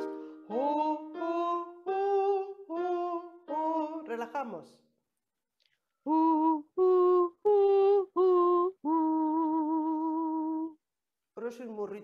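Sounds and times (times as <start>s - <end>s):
woman singing vocal exercise: 0.0s - 4.5s, 6.0s - 10.8s.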